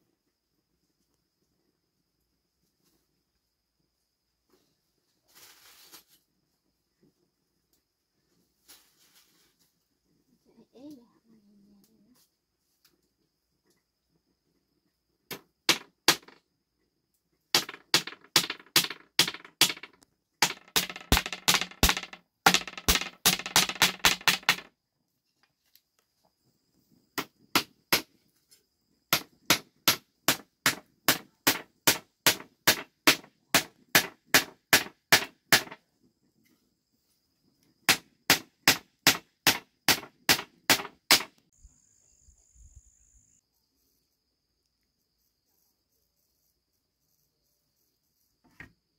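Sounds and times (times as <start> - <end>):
hammer driving nails into wood: 15.3 - 16.4, 17.6 - 24.7, 29.1 - 35.8, 37.9 - 41.4.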